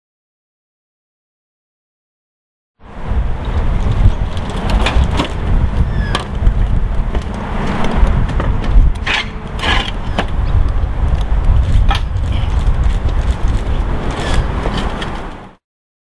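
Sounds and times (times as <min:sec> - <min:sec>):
wind rumble on microphone: 0:02.8 - 0:15.6
short scrapes: 0:09.0 - 0:10.2.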